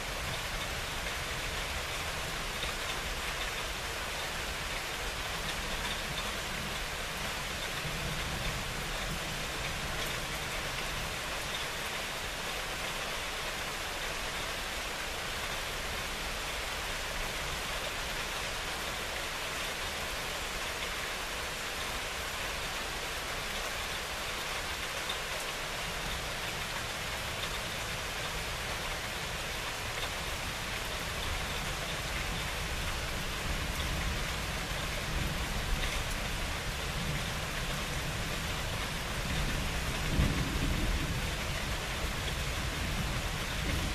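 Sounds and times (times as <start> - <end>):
steady rain falling: 0.0 - 43.9
low rumble of thunder: 27.3 - 43.9.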